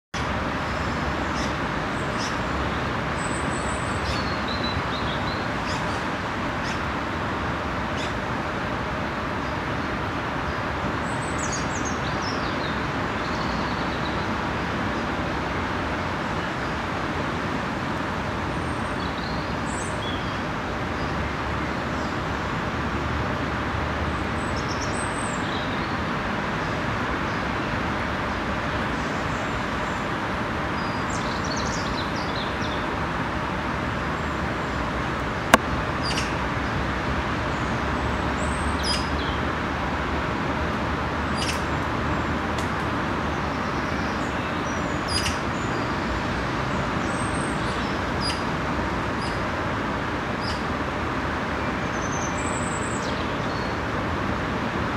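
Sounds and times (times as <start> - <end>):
distant road traffic roar: 0.2 - 54.9
small birds chirping: 35.4 - 36.8, 37.5 - 39.4, 41.3 - 48.5.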